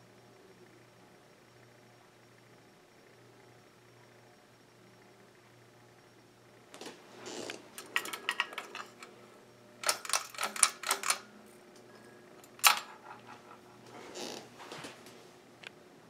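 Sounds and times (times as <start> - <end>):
ceiling fan humming: 0.0 - 16.0
rapid clicking and rattling: 7.7 - 9.1, 9.8 - 11.2.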